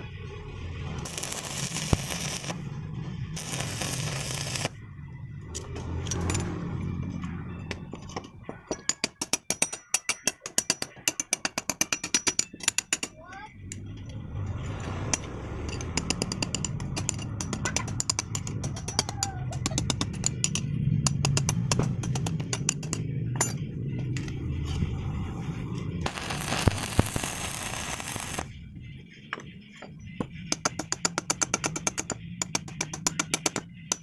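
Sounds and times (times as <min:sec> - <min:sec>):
steel pieces ticking and tapping: 0:01.0 - 0:02.6, 0:03.4 - 0:04.8, 0:07.7 - 0:24.4, 0:26.1 - 0:28.5, 0:29.3 - 0:34.0
welding arc crackling: 0:01.0 - 0:02.7, 0:03.4 - 0:04.8, 0:26.0 - 0:28.5.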